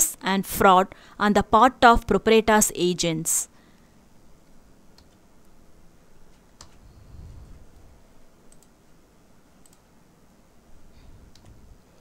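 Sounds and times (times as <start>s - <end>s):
soft low rumble: 6.8s - 8.1s
sharp clicks: 9.6s - 9.8s.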